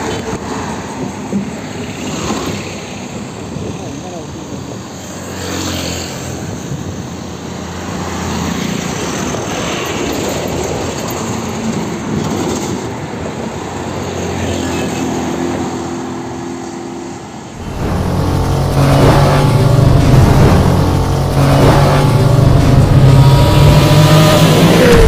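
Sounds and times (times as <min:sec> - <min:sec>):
truck and bus engines droning: 0:15.6 - 0:25.0
deep engine: 0:17.6 - 0:25.0
tyre noise: 0:17.6 - 0:25.0.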